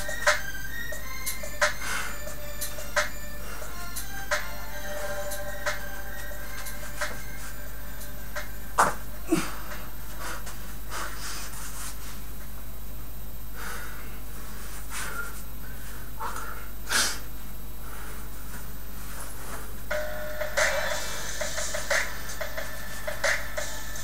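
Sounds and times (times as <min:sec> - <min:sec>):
steady low hum: 0:00.0 - 0:24.0
man breathing hard: 0:01.7 - 0:02.5, 0:03.2 - 0:04.0, 0:09.2 - 0:11.9, 0:13.5 - 0:18.4.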